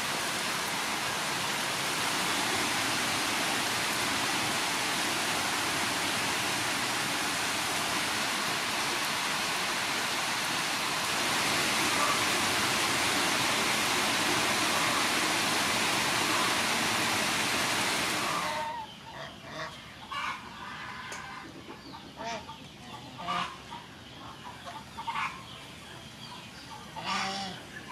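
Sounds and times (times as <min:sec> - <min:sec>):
heavy rain falling: 0:00.0 - 0:18.8
chickens clucking: 0:18.0 - 0:27.9.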